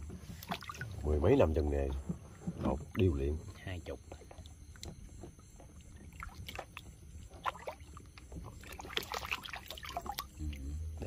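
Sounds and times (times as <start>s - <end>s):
water splashing and dripping: 0.0s - 1.4s, 4.2s - 10.6s.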